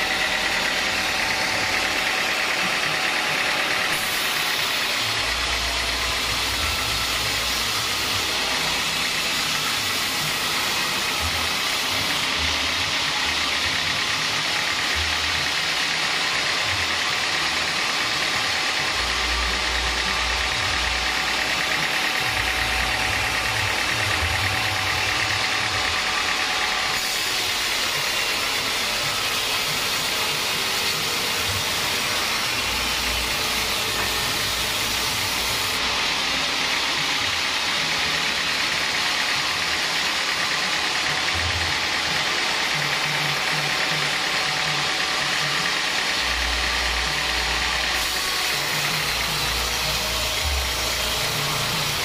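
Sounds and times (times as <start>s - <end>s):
band saw cutting log: 0.0s - 52.0s.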